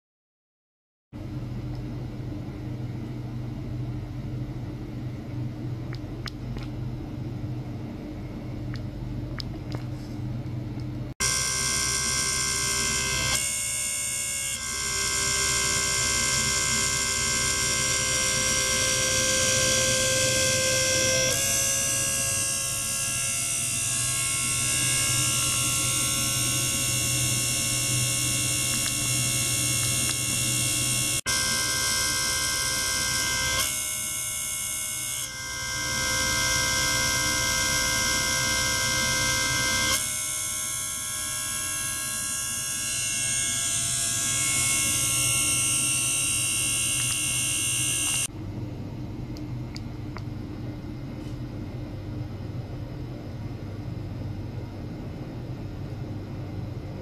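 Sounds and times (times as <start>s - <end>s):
dull hum: 1.2s - 14.0s
ultrasonic tank buzzing hiss: 41.3s - 48.3s.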